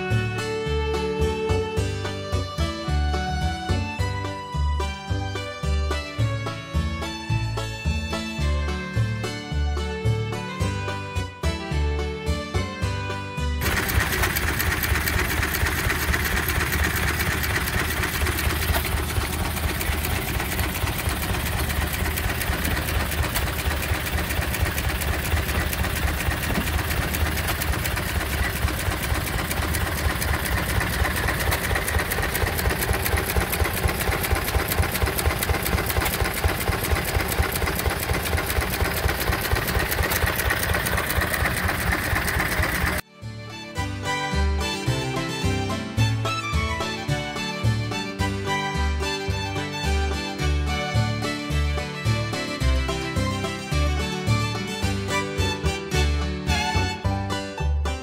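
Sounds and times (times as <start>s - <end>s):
stationary engine clattering: 13.6s - 43.0s
water pouring into metal pail: 13.6s - 43.0s.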